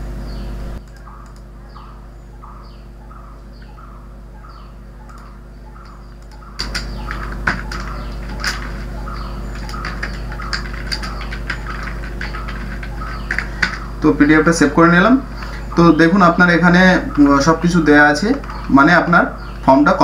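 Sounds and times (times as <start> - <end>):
low steady hum: 0.0 - 20.0
small bird chirping: 0.2 - 20.0
computer keyboard clicks: 0.8 - 1.5, 5.0 - 13.8.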